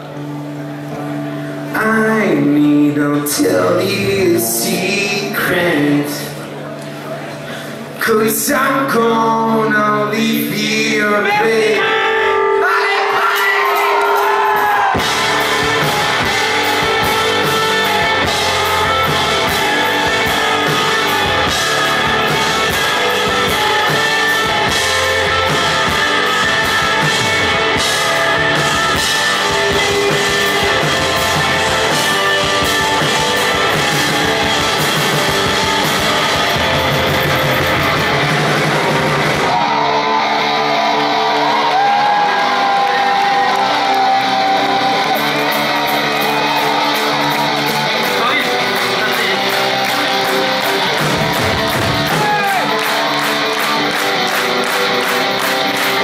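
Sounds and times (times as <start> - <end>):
electric guitars: 0.0 - 56.0
drum kit playing: 13.4 - 40.0, 43.3 - 56.0.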